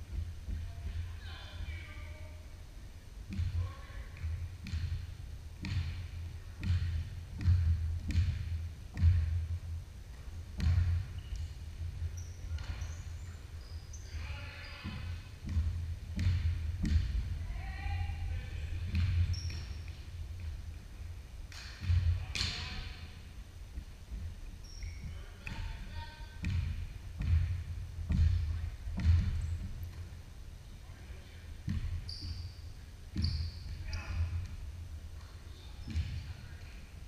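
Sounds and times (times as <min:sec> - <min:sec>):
basketball bouncing on hardwood floor: 0:03.3 - 0:03.6, 0:04.2 - 0:09.5, 0:10.5 - 0:11.5, 0:14.8 - 0:17.3, 0:18.8 - 0:20.5, 0:21.8 - 0:22.6, 0:26.4 - 0:30.1, 0:31.6 - 0:32.4, 0:33.1 - 0:34.6, 0:35.8 - 0:36.3.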